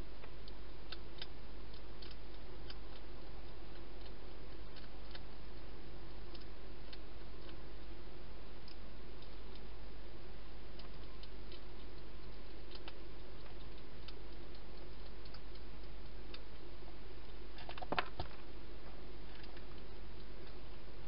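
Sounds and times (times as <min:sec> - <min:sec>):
low electrical hum: 0:00.0 - 0:21.0
hedgehog chewing clicks and crunches: 0:00.2 - 0:08.0, 0:10.6 - 0:18.5.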